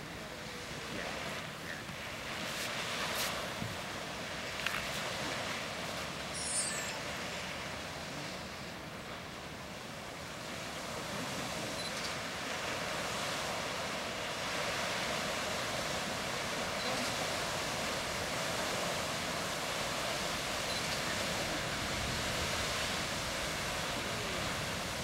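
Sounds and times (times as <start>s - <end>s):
geyser erupting with rushing hiss: 7.0s - 25.0s.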